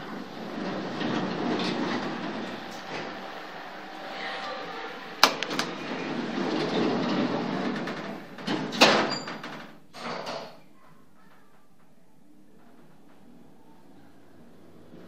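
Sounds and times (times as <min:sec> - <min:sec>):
train: 0:00.0 - 0:06.3
station noise: 0:00.0 - 0:08.4
elevator doors closing: 0:00.0 - 0:10.4.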